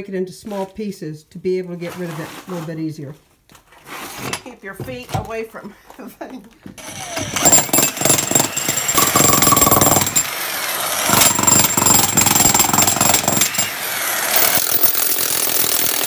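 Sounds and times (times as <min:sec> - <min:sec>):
demolition hammer chiselling brick: 0:06.8 - 0:16.0.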